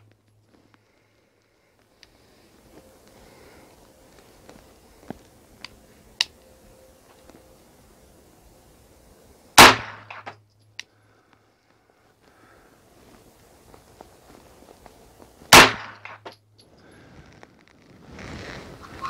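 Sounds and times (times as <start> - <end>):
pistol shot: 9.6 - 10.4, 15.5 - 16.3.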